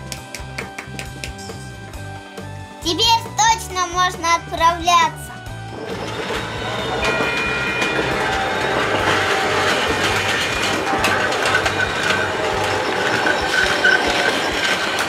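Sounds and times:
toy train clattering on track: 5.8s - 15.0s.

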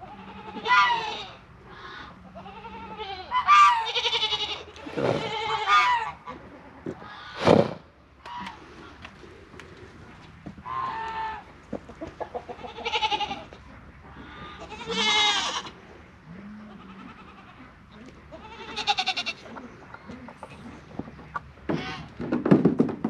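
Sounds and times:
goats bleating: 0.0s - 7.4s, 10.6s - 11.5s, 12.2s - 19.7s.

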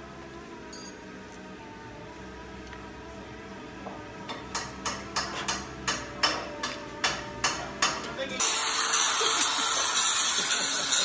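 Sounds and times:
metallic taps on metal parts: 4.3s - 8.2s.

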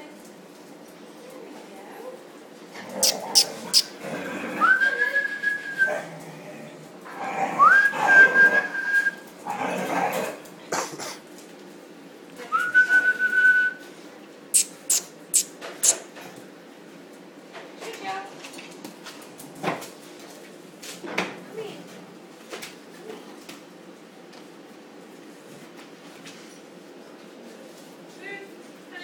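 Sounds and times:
dogs yapping and scuffling: 0.4s - 11.8s
rising whistles: 7.6s - 9.2s.

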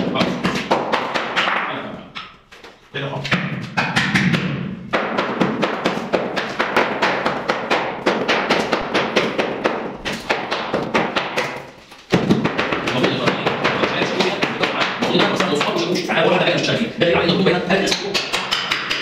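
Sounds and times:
hammer striking chisel on concrete: 17.8s - 19.0s.

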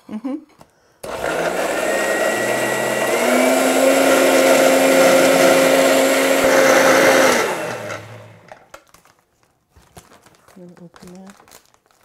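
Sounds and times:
blender motor running: 1.0s - 8.6s.

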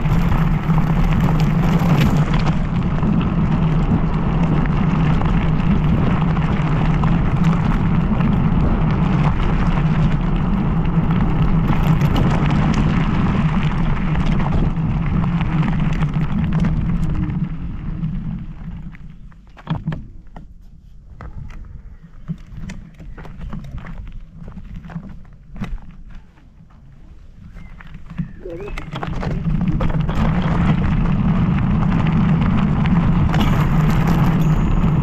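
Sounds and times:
wind buffeting microphone: 0.0s - 20.4s, 21.0s - 35.0s.

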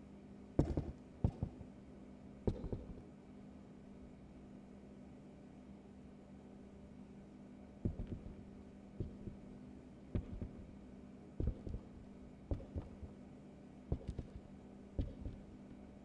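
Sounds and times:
steady low hum: 0.0s - 16.0s
heartbeat thumps: 0.6s - 1.6s, 2.5s - 3.0s, 7.8s - 8.4s, 9.0s - 9.4s, 10.2s - 10.7s, 11.4s - 13.1s, 13.9s - 15.4s.

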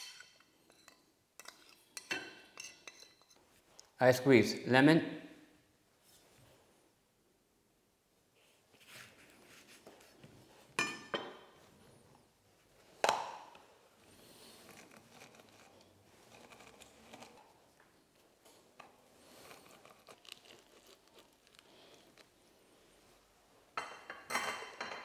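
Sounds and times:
lemon scraping on juicer: 14.7s - 17.6s.

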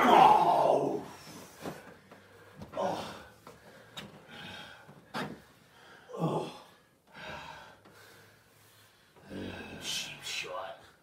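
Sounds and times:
man groaning: 0.0s - 1.1s, 2.8s - 3.3s, 6.1s - 6.7s
heavy breathing: 1.1s - 11.0s.

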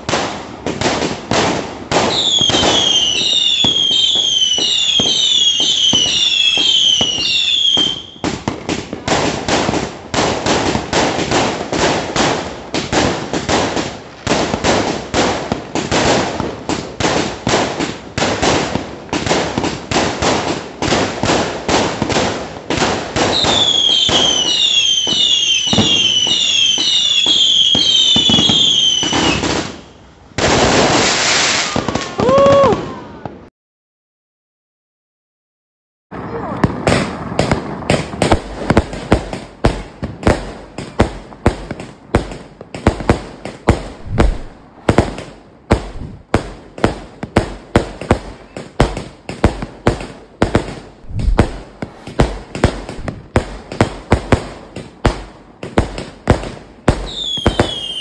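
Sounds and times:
firework pops and bangs: 0.0s - 29.8s, 30.4s - 33.4s, 36.2s - 58.0s
falling firework whistle: 1.9s - 8.3s, 23.2s - 30.0s, 31.0s - 33.4s, 44.0s - 44.6s, 57.0s - 58.0s.

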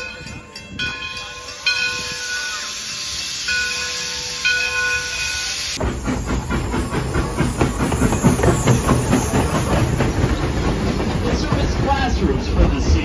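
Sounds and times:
ringing bell: 0.0s - 5.8s
steam locomotive hissing: 0.0s - 13.0s
train wheels clattering: 0.2s - 13.0s.

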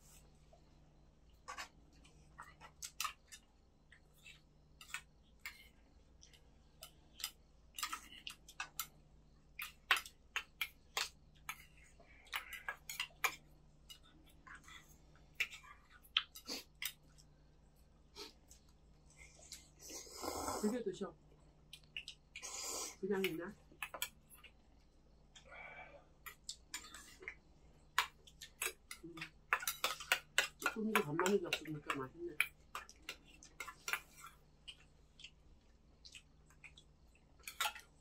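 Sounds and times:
people chewing: 1.2s - 20.7s, 21.3s - 38.0s
chopsticks and spoons tapping bowls: 26.3s - 34.1s.

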